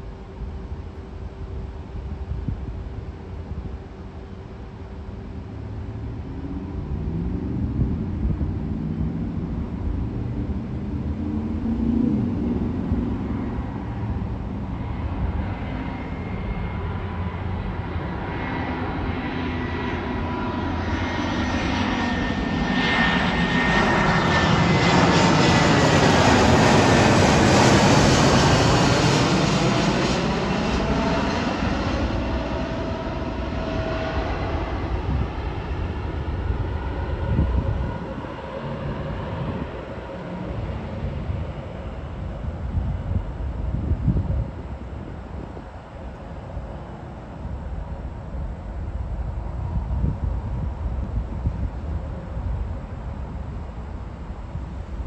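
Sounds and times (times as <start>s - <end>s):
jet airliner flying overhead: 0.0s - 55.0s.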